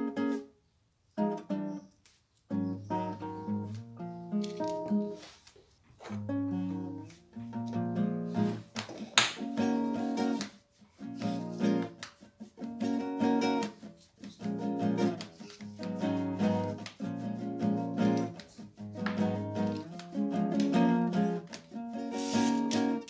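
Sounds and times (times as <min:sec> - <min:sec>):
acoustic guitar strumming chords: 0:06.1 - 0:12.0, 0:12.6 - 0:23.0.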